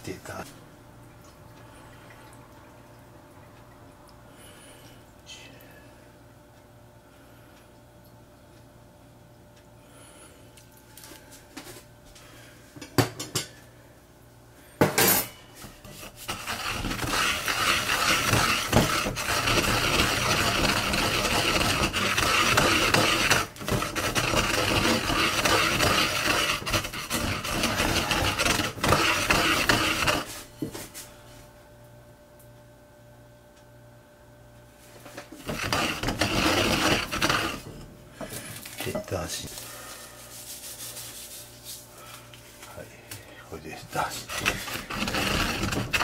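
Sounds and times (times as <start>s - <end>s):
pestle grinding in mortar: 15.9s - 30.4s, 35.3s - 39.3s, 44.2s - 46.0s.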